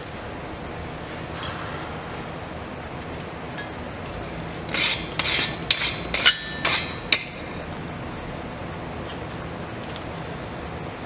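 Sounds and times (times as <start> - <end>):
wire brush scraping steel: 4.7 - 7.0.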